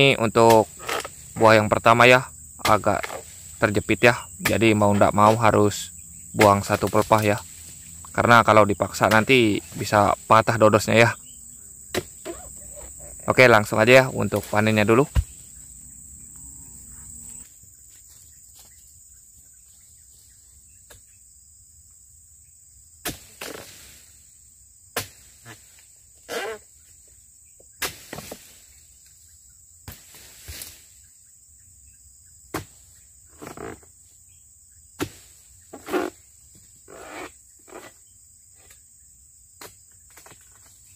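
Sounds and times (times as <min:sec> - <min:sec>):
high insect drone: 0:00.0 - 0:40.9.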